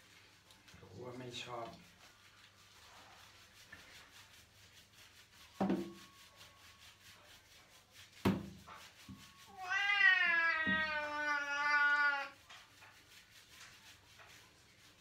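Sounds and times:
cat meowing: 0:09.4 - 0:12.4.

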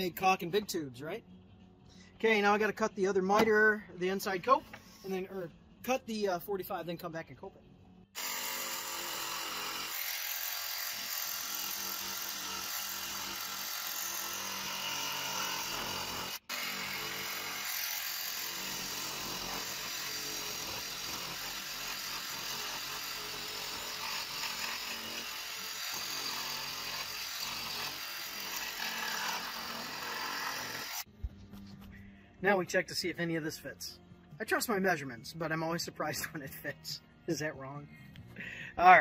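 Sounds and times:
jigsaw cutting wood: 0:08.2 - 0:31.1.

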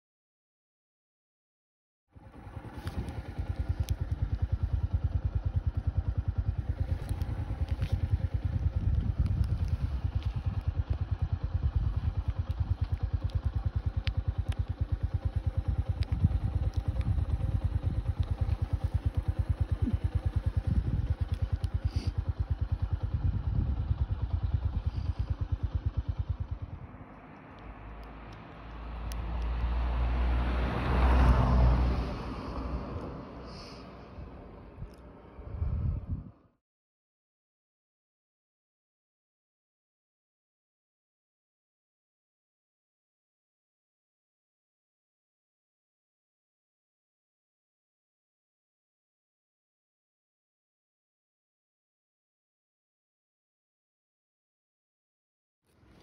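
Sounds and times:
vehicle engine throbbing: 0:02.1 - 0:36.5.

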